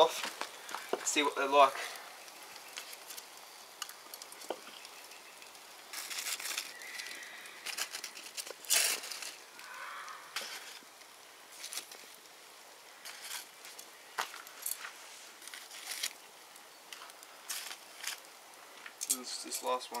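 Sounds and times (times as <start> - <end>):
fire crackling softly: 0.0 - 20.0
foil crinkling: 2.6 - 16.3, 16.9 - 19.0.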